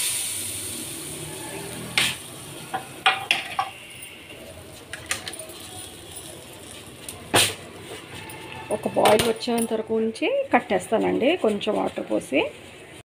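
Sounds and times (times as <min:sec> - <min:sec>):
metal cookware clinking: 0:02.0 - 0:04.2, 0:04.9 - 0:07.6, 0:08.2 - 0:10.1.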